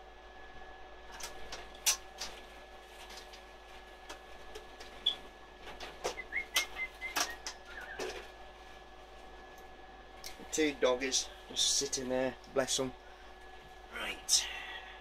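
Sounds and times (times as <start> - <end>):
whistled notes: 6.2 - 8.0.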